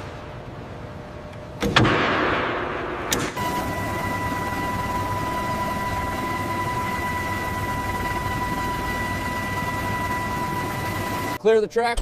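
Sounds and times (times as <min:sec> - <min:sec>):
constant high whine: 0:00.0 - 0:12.0.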